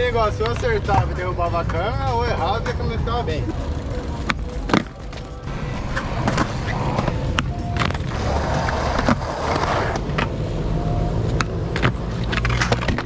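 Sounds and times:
skateboard wheels rolling on concrete: 0.0 - 13.0
skateboard clacking on ground: 4.2 - 10.3.

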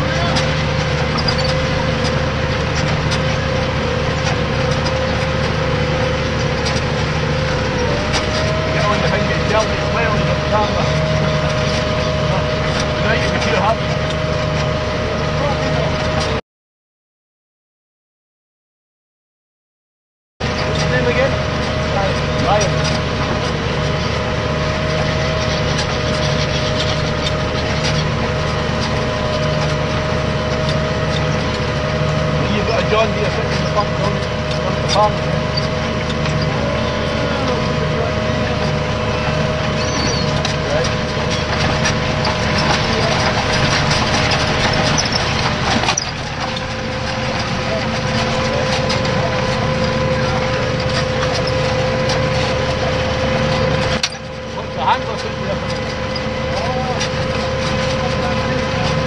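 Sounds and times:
tractor diesel engine running: 0.0 - 16.4, 20.4 - 59.0.

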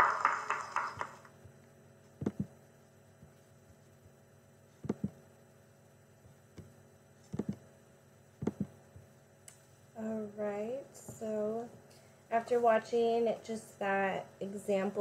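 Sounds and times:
children and teacher clapping: 0.0 - 1.3
faint electrical hum: 0.0 - 15.0.

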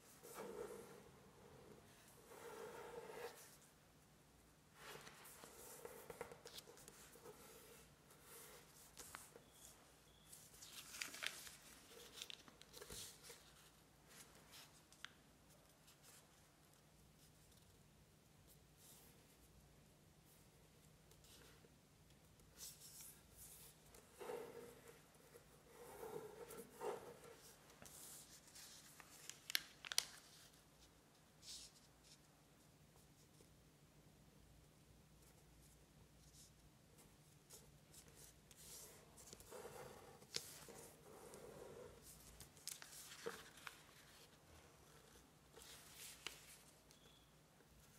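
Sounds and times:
paper rustling while folded: 4.8 - 15.0, 22.6 - 30.6, 38.0 - 47.0.

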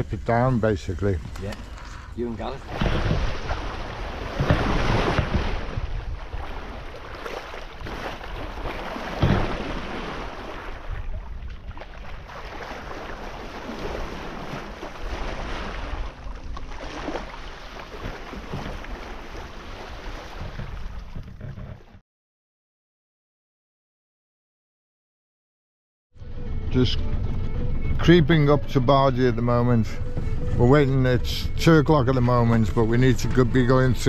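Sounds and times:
water rushing along hull: 0.0 - 22.0
wind buffeting microphone: 2.1 - 16.2.

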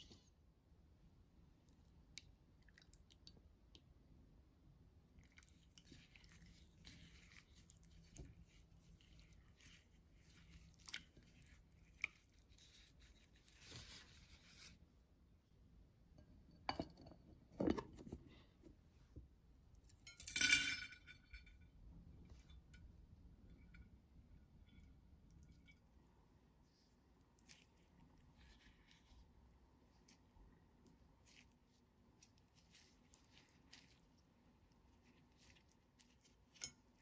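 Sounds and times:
wet squelching of marinade: 5.0 - 14.8, 26.6 - 37.0.

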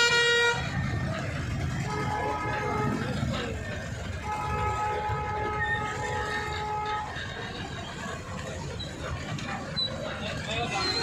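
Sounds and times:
vehicle horn chord: 0.0 - 0.8
low rumble of traffic engines: 0.0 - 11.0.

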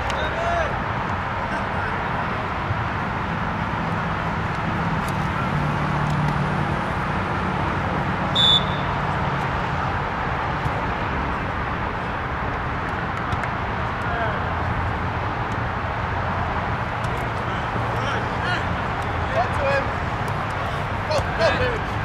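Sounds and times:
referee's whistle blast: 8.3 - 8.9.

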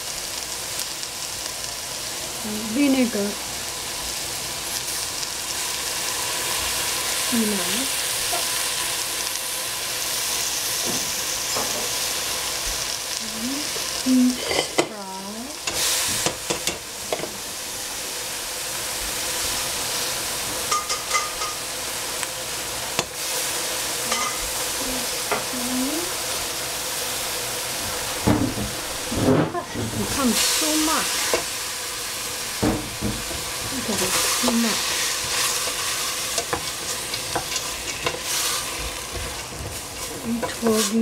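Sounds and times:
vegetables sizzling in a pot: 0.0 - 41.0
wooden spatula scraping pot: 33.2 - 41.0.

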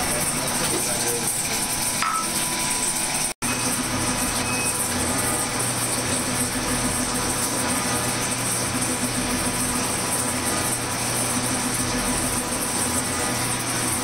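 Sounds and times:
metal shaper machine drone: 0.0 - 14.0.

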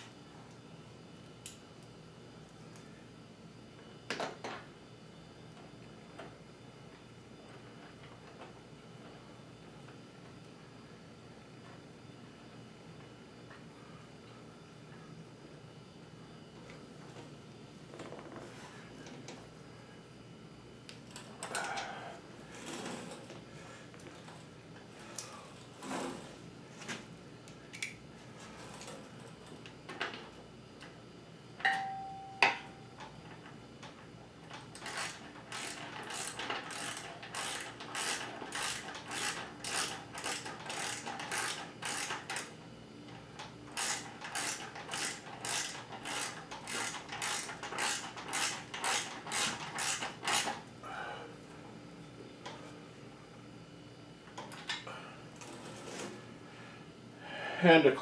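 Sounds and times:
ringing metallic clink: 31.6 - 32.8
hand ratchet clicking: 34.7 - 42.5, 43.7 - 50.6.

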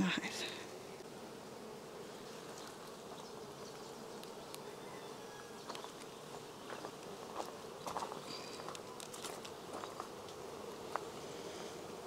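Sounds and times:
bees buzzing: 0.0 - 12.0.

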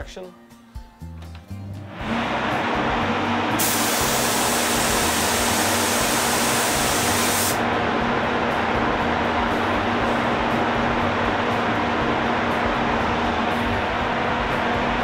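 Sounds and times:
extraction fans running: 1.1 - 15.0
spray gun hissing: 3.6 - 7.6.

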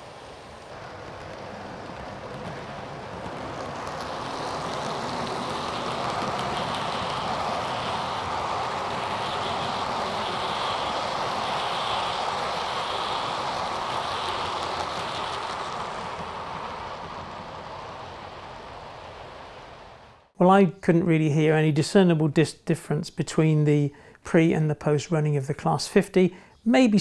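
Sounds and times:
model train motor whirring: 0.0 - 18.0.

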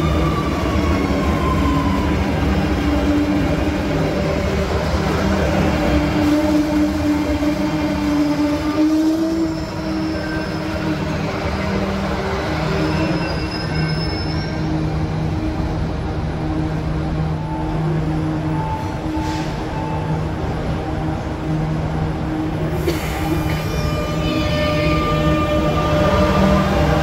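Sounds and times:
subway train running hum: 0.0 - 27.0
high wheel squeals: 9.4 - 11.7, 12.5 - 14.8.

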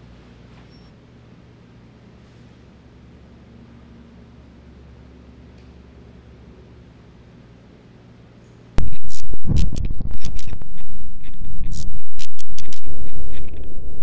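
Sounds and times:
harsh distorted glitch static: 8.8 - 14.0.

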